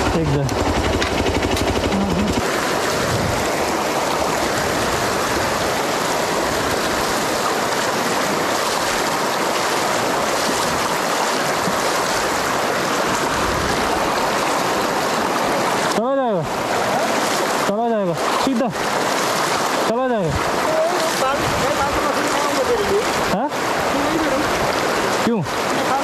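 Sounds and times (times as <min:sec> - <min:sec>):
motorcycle engine idling: 0:00.0 - 0:02.4
river rushing over stones: 0:00.0 - 0:26.0.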